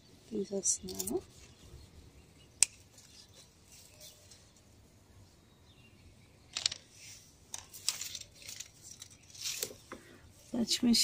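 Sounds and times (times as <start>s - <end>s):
dry leaves rustling: 6.9s - 11.0s.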